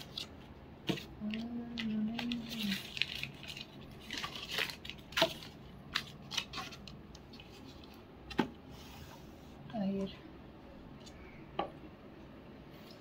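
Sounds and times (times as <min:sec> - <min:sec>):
plastic packaging crinkling: 0:00.0 - 0:08.0.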